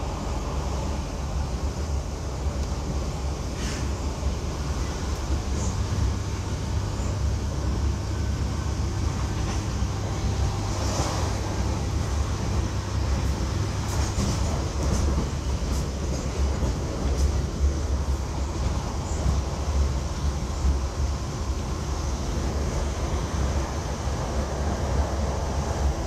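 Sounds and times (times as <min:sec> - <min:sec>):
train rumbling on rails: 0:00.0 - 0:26.0.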